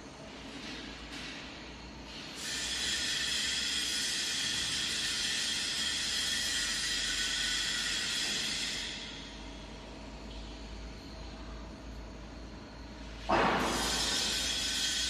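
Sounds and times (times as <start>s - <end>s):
gas hissing with faint whistle: 2.4s - 9.4s, 12.8s - 15.0s.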